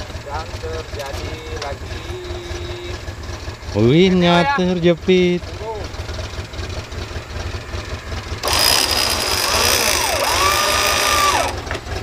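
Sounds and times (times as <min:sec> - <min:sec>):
engine idling: 0:00.0 - 0:12.0
electric winch motor whining: 0:08.2 - 0:11.8.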